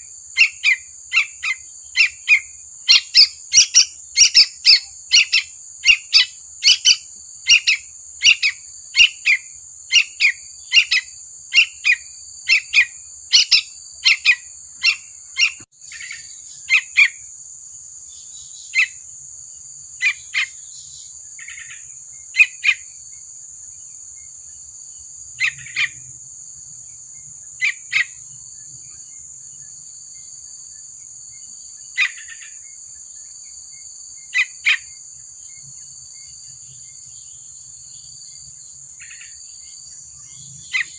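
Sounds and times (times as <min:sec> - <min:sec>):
bird sharp chirps: 0:00.0 - 0:17.3, 0:25.4 - 0:26.1, 0:31.9 - 0:32.7, 0:36.6 - 0:40.9.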